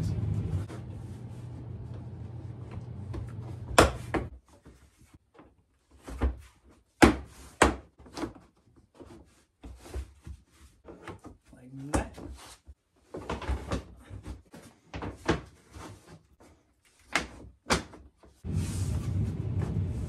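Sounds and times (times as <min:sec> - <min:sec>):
low steady hum: 0:00.0 - 0:04.3.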